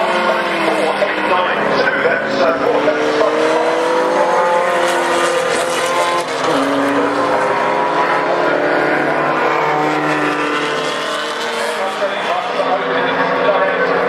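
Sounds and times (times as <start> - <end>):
racing car engines running hard: 0.0 - 14.0.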